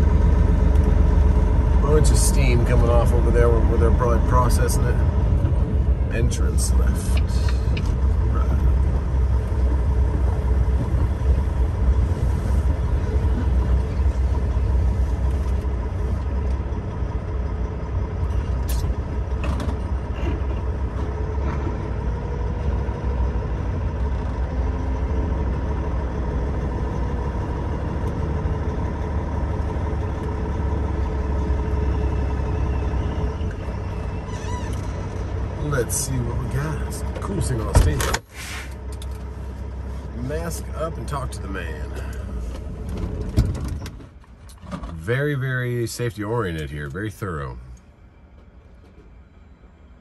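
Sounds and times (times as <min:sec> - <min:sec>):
diesel truck engine rumbling: 0:00.0 - 0:50.0
faint engine whine: 0:00.0 - 0:50.0.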